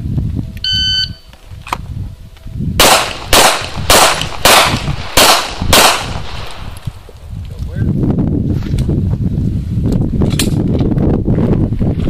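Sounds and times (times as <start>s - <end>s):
shot timer beep: 0.6s - 1.3s.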